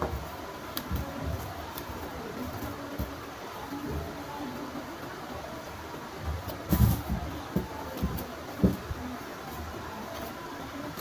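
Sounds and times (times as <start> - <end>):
soft thumps: 6.2 - 9.2.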